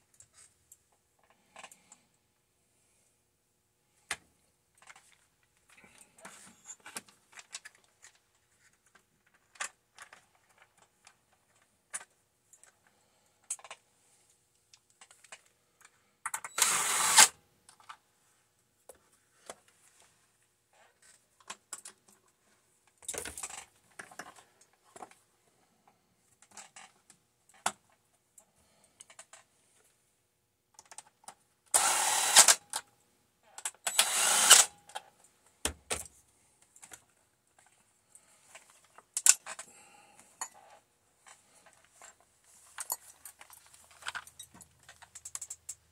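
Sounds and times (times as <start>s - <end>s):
cordless drill driving screws: 16.5s - 17.3s, 31.7s - 32.6s, 33.9s - 34.7s
parts clicking and clattering: 21.0s - 25.2s, 33.6s - 45.9s.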